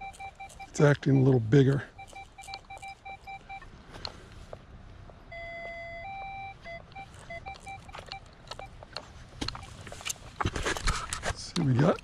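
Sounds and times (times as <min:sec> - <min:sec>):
metal detector beeps and tones: 0:00.0 - 0:03.7, 0:05.3 - 0:10.1.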